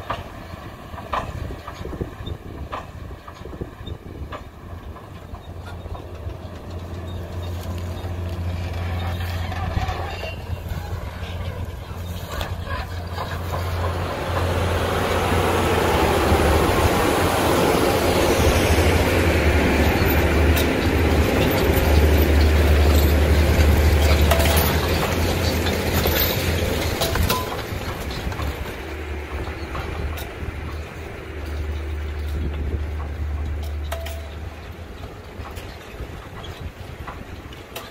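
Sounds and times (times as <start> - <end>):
tractor diesel engine drone: 0.0 - 37.9.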